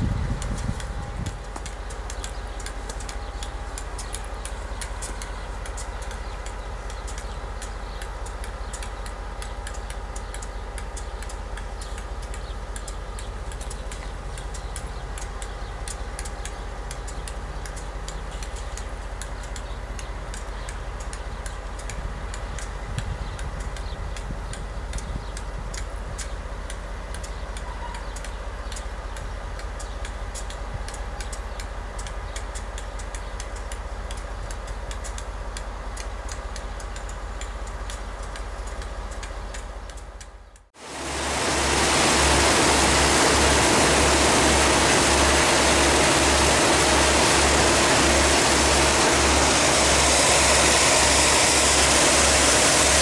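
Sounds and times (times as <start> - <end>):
sharp ticks: 0.0 - 40.7
locomotive engine rumble: 0.0 - 53.0.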